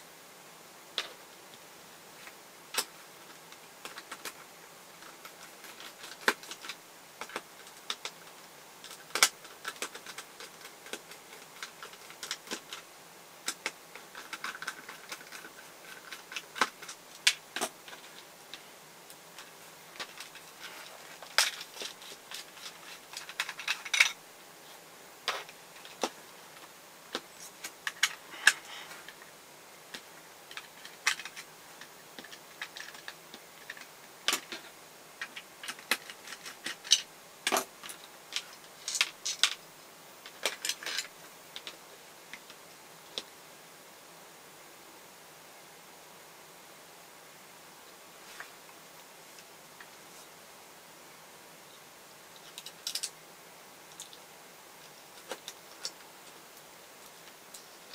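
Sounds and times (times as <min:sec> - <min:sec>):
plastic parts set on table: 0:05.0 - 0:18.6, 0:19.4 - 0:24.2, 0:25.2 - 0:29.3, 0:29.9 - 0:39.6, 0:40.2 - 0:43.3, 0:52.4 - 0:53.2.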